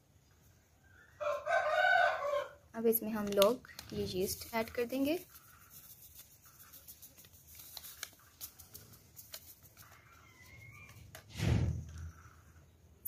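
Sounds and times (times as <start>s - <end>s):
yeast packet crinkling: 3.0s - 11.3s.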